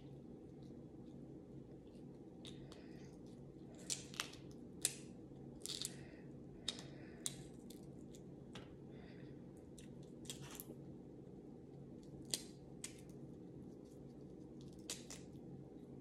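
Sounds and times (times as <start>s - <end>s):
low steady hum: 0.0s - 16.0s
shellfish shell cracking: 3.7s - 6.0s, 12.1s - 13.2s, 14.6s - 15.3s.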